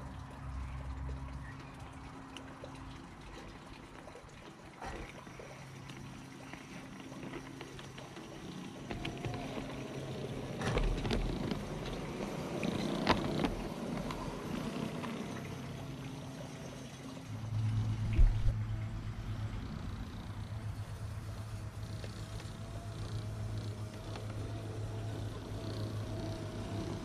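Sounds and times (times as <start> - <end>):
low hum: 4.8 - 27.0
model tram motor whine: 5.6 - 27.0
wheel clatter: 6.5 - 16.4.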